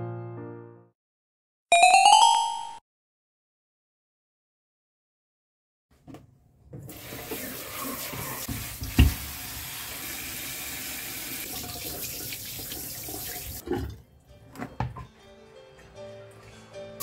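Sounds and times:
tap running into a sink: 6.8 - 9.7.

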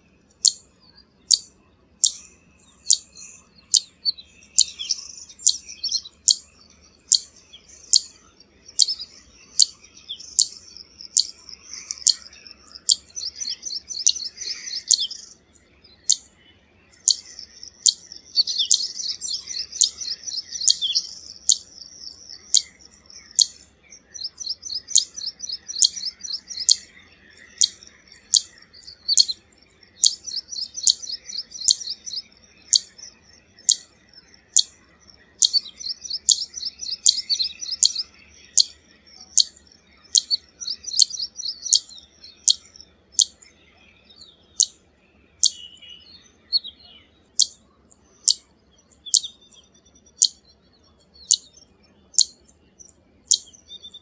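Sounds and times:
bird high chattering: 7.1 - 15.3, 17.0 - 33.9, 34.5 - 43.4
bird sharp zit calls: 7.1 - 15.3, 17.0 - 26.9, 35.4 - 43.4.

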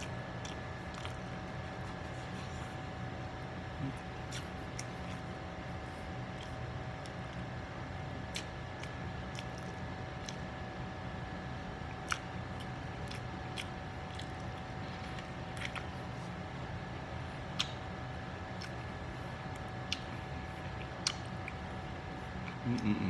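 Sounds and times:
chewing rice: 0.0 - 23.0
steady hum: 0.0 - 23.0
wet mouth clicks and smacks: 8.3 - 10.5, 12.0 - 14.6, 17.5 - 21.8.

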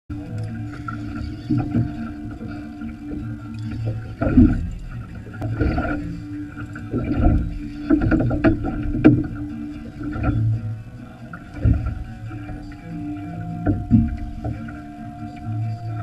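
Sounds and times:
steady low hum: 0.1 - 16.0
water noise around boat: 0.1 - 16.0.

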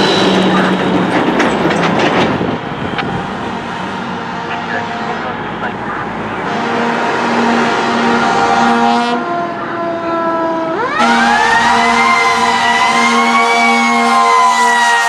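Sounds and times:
fire engine air horns: 4.0 - 15.0
siren wailing: 4.3 - 15.0.

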